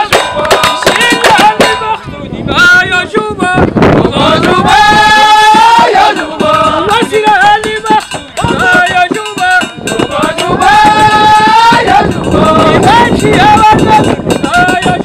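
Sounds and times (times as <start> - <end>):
sharp percussive strikes: 0.0 - 2.1, 4.4 - 15.0
man singing a chant: 0.0 - 15.0.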